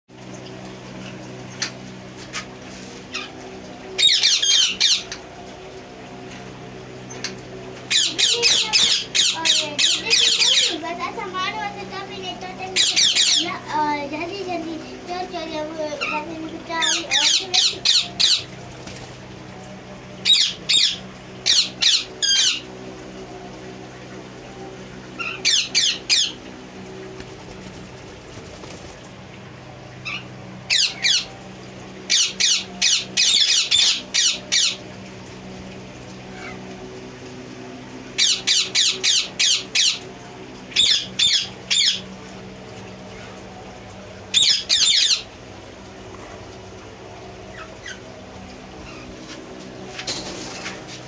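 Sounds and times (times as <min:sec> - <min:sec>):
low steady hum: 0:00.1 - 0:51.0
parrots calling: 0:04.0 - 0:05.2, 0:07.8 - 0:10.8, 0:12.7 - 0:13.6, 0:16.0 - 0:18.6, 0:20.2 - 0:22.7, 0:25.2 - 0:26.4, 0:30.0 - 0:31.4, 0:32.1 - 0:34.8, 0:36.3 - 0:36.7, 0:38.2 - 0:40.1, 0:40.8 - 0:42.1, 0:44.3 - 0:45.3, 0:47.5 - 0:48.1.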